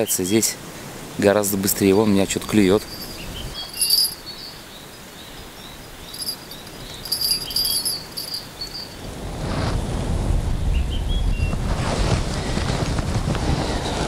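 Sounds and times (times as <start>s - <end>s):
bite alarm bell jingling: 2.6s - 4.5s, 6.0s - 9.0s
wind noise on microphone: 6.1s - 14.0s.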